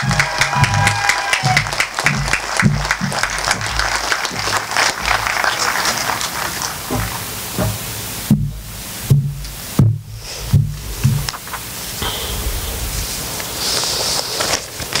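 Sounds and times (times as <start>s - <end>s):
crowd applauding: 0.0s - 7.2s
low thumps: 8.3s - 13.8s.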